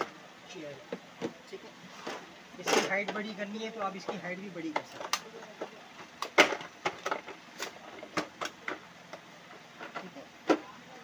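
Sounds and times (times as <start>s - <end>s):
hard plastic parts clicking: 4.0s - 9.2s.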